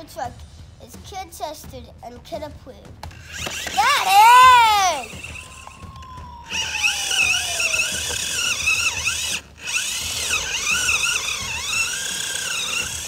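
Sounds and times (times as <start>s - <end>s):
toy truck electric motor whining: 3.1s - 13.0s.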